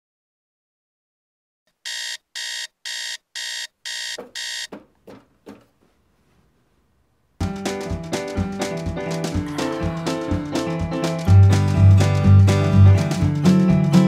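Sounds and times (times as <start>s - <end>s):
electronic alarm beeping: 1.8s - 4.8s
music: 7.4s - 14.0s.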